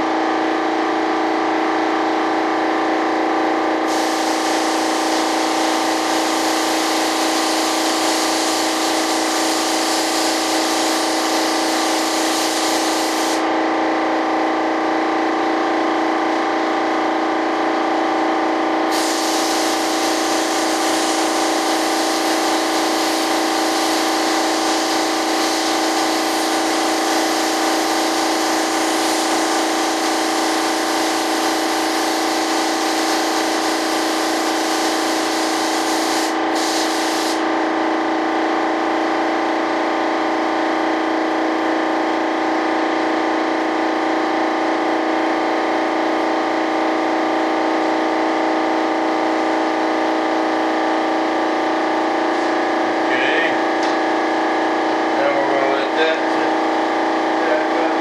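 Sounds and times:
air spray gun hissing: 3.8 - 13.6, 18.9 - 37.6.

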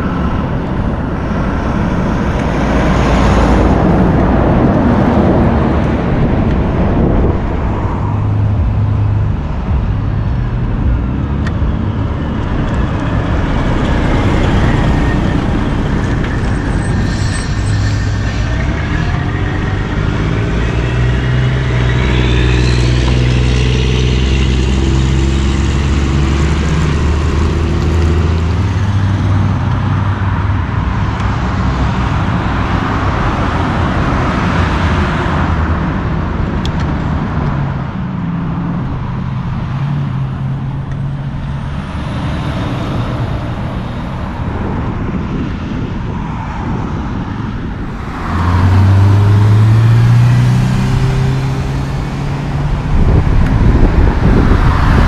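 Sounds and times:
diesel truck engine pulling away: 0.0 - 30.0, 47.8 - 55.0
loud engine: 0.0 - 46.0, 46.8 - 55.0
road traffic passing: 0.0 - 55.0.

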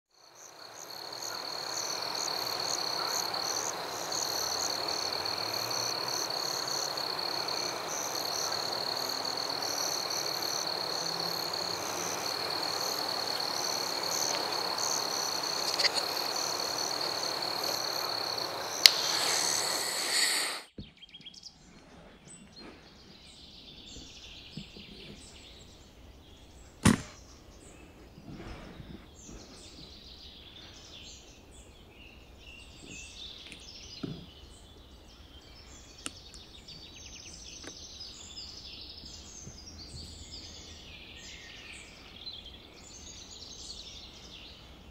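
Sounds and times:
birds chirping: 0.3 - 44.4
sharp crack: 18.8 - 20.7, 26.8 - 27.2.

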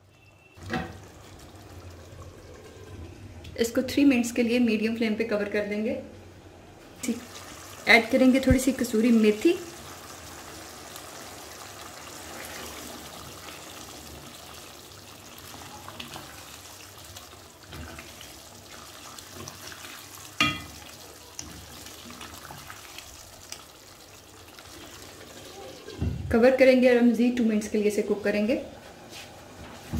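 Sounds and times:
gravy bubbling: 0.9 - 3.5.

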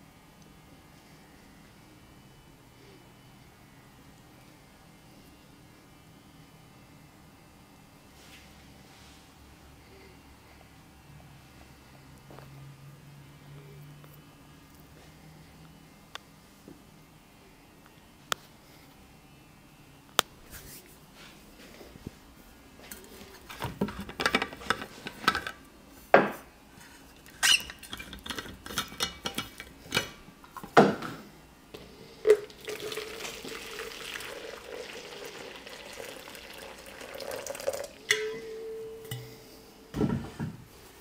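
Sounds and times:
flask and jug clinking: 32.2 - 39.4
water pouring into jug: 32.3 - 38.1.

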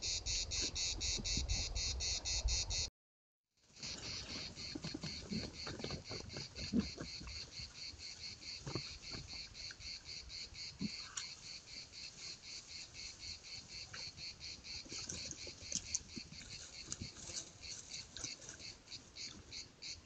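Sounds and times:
insects chirring: 0.0 - 2.9, 3.8 - 20.0
wild boar moving on ground: 3.7 - 20.0.

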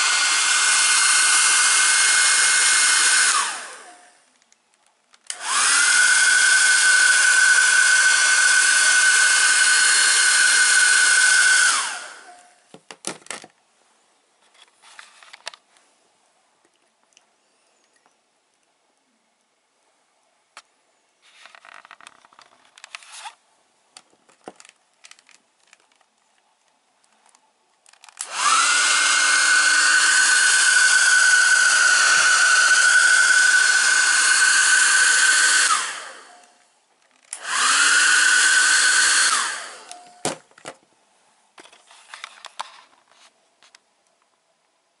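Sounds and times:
hair dryer fan whine: 0.0 - 4.2, 5.3 - 12.6, 28.2 - 36.7, 37.3 - 40.4
handling clicks and rustles: 21.3 - 28.3.

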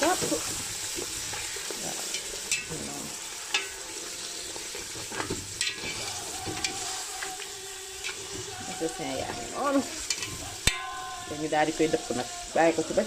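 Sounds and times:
meat sizzling in hot oil: 0.0 - 13.0
spoon clinking against pot: 2.1 - 2.8, 3.5 - 3.8, 5.6 - 6.8, 10.1 - 11.0.

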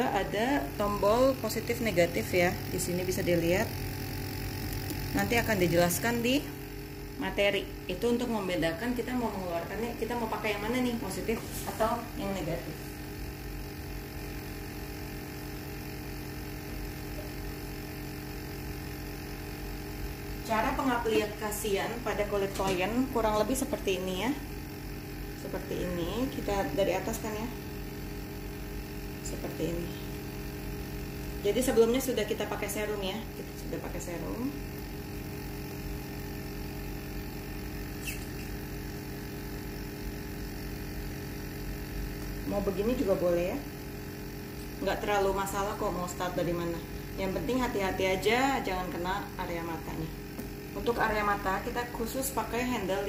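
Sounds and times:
electrical hum and buzz: 0.0 - 53.0.

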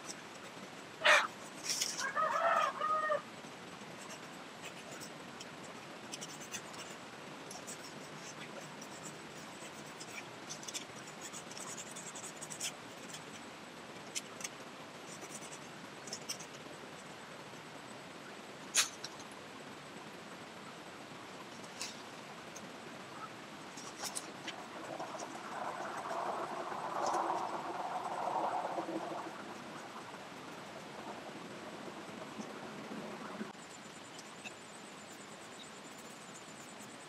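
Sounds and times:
faint light ticks and scratches: 0.0 - 2.8, 3.4 - 17.7, 18.8 - 19.4, 21.4 - 31.2, 32.0 - 37.0
chicken clucking: 1.0 - 1.3.

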